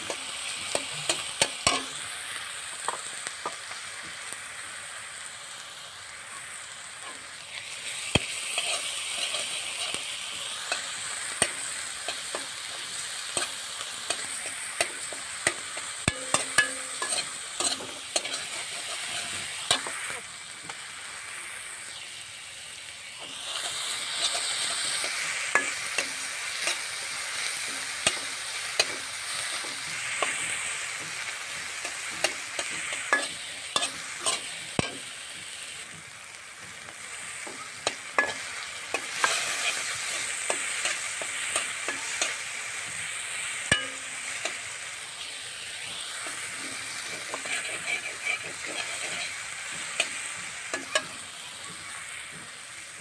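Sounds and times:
metal spatula scraping pan: 0:00.0 - 0:02.0, 0:08.2 - 0:20.2, 0:23.4 - 0:35.1, 0:37.3 - 0:42.9, 0:43.6 - 0:44.7, 0:46.2 - 0:51.2
paste sizzling in oil: 0:00.0 - 0:53.0.

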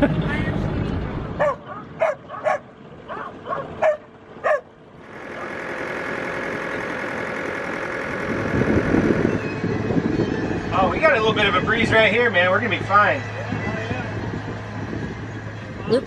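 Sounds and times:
dog barking: 0:01.4 - 0:04.7
sailboat rushing water rumble: 0:07.8 - 0:16.0.

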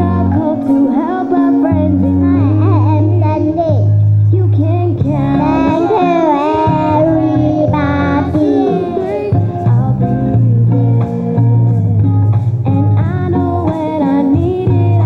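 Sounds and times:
backing music with bass: 0:00.0 - 0:15.0
children singing: 0:04.6 - 0:11.6.

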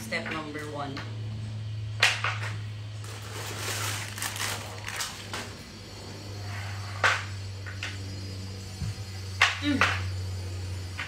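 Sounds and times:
low hum: 0:00.0 - 0:11.0
scraping and rustling: 0:03.0 - 0:05.6.

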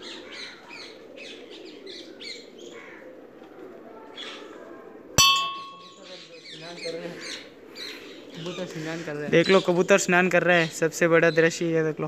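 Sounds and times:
birds chirping: 0:00.0 - 0:03.1, 0:05.2 - 0:11.8
brass bell ringing: 0:05.2 - 0:06.0.

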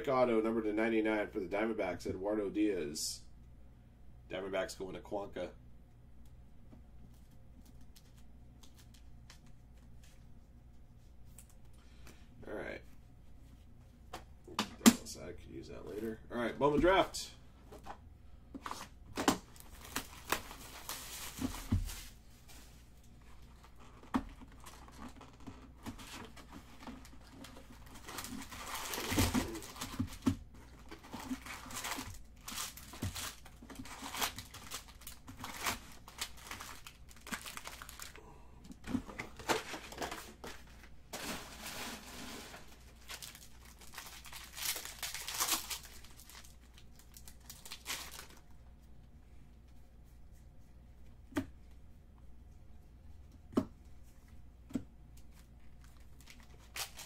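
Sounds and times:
foil wrappers crinkling: 0:19.4 - 0:38.3, 0:38.9 - 0:48.5, 0:55.8 - 0:57.0
cardboard tearing: 0:24.6 - 0:38.1.

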